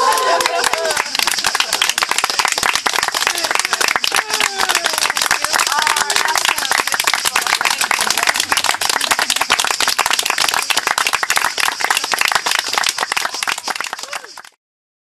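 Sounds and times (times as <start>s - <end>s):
people clapping: 0.0s - 14.6s.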